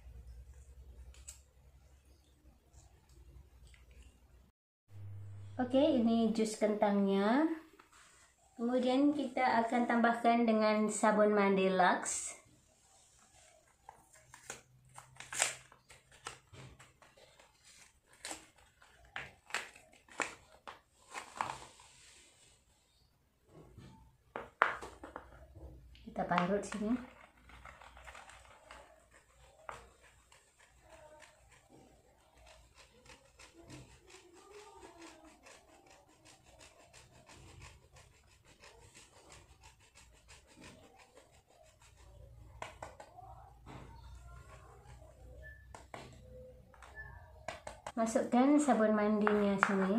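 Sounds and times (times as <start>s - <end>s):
papery rustle: 12.9s - 22.6s, 26.7s - 37.9s
soap scraping on metal grater: 27.1s - 42.8s.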